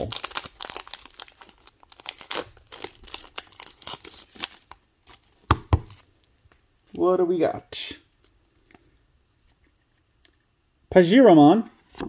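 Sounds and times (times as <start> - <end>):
foil wrapper crinkling and tearing: 0.0 - 6.2
papery rustling of cards: 0.0 - 6.2.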